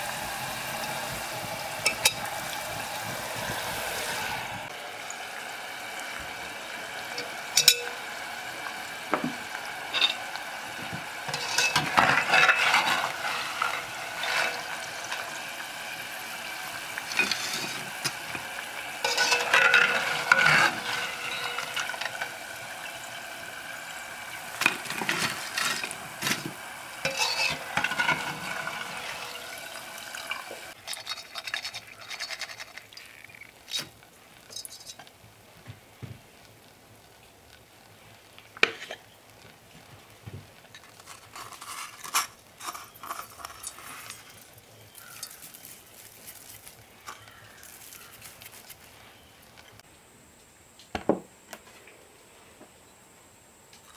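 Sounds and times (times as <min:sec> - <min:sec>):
metal skimmer scraping pot: 0:00.0 - 0:05.5, 0:06.3 - 0:35.1, 0:40.7 - 0:47.3
oil sizzling: 0:00.0 - 0:49.8.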